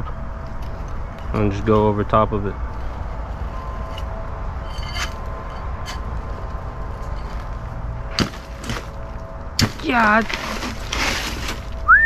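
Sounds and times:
faint hum: 0:00.0 - 0:12.0
low rumble: 0:00.0 - 0:12.0
mattock striking gravel: 0:08.1 - 0:12.0.

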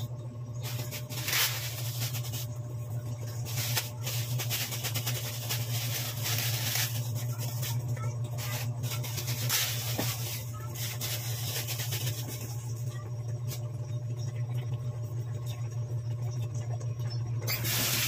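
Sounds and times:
steady low hum: 0:00.0 - 0:18.0
dry noodles crackling: 0:00.6 - 0:02.5, 0:03.2 - 0:12.7
plastic wrapper rustling: 0:00.6 - 0:02.5, 0:03.3 - 0:12.6.

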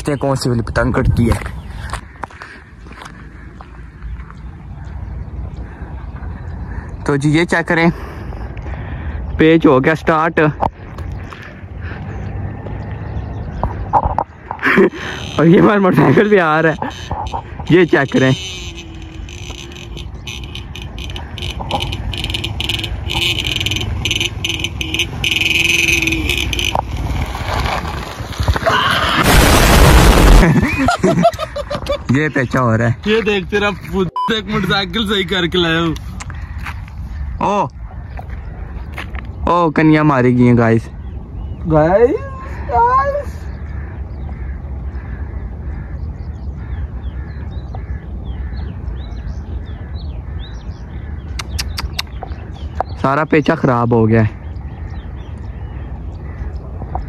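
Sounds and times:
small birds chirping: 0:00.0 - 0:27.4, 0:30.6 - 0:57.0
crows cawing: 0:01.9 - 0:04.2, 0:14.4 - 0:27.8, 0:36.2 - 0:39.0, 0:42.4 - 0:51.5, 0:54.6 - 0:56.7
wind buffeting microphone: 0:10.6 - 0:39.5, 0:40.9 - 0:53.6, 0:54.3 - 0:57.0
pulsing high-pitched chirping: 0:16.6 - 0:27.2.

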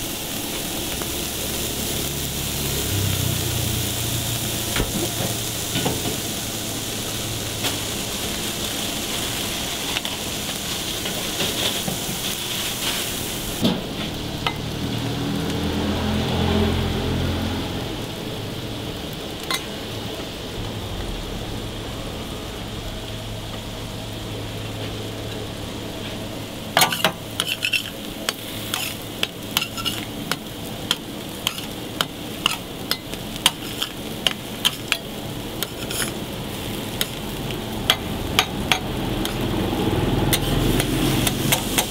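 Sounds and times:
burger patties sizzling on griddle: 0:00.0 - 0:41.9
metal spatula scraping griddle: 0:09.8 - 0:13.2, 0:26.8 - 0:36.3
low rumble: 0:15.7 - 0:26.7.

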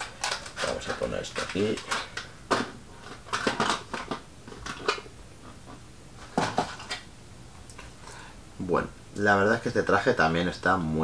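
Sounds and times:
cardboard and plastic crinkling: 0:00.0 - 0:02.2.

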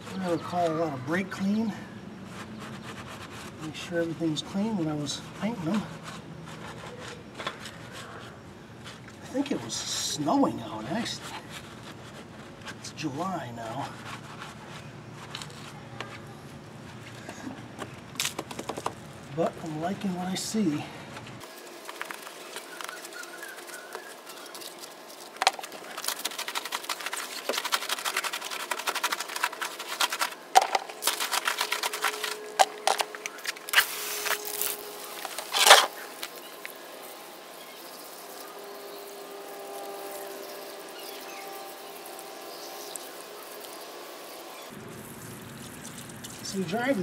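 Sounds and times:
scrubbing wheel with brush: 0:00.0 - 0:17.6, 0:21.4 - 0:47.0
brush knocking against wheel: 0:25.3 - 0:33.2
water hiss from hose: 0:33.7 - 0:46.7.

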